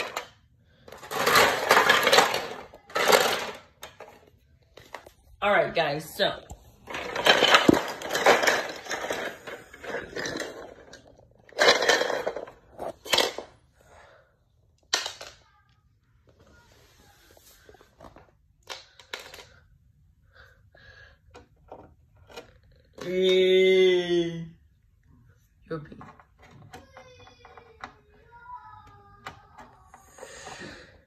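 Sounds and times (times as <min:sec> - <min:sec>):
plastic toy pieces clattering on wood: 0:00.0 - 0:05.1, 0:06.8 - 0:13.6, 0:14.8 - 0:15.4, 0:18.0 - 0:19.7, 0:25.9 - 0:28.3.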